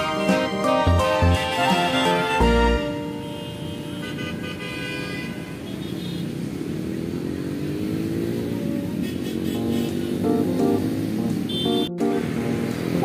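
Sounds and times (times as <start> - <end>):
background music: 0.0 - 3.4, 9.6 - 13.0
cars and motorcycles passing: 0.0 - 13.0.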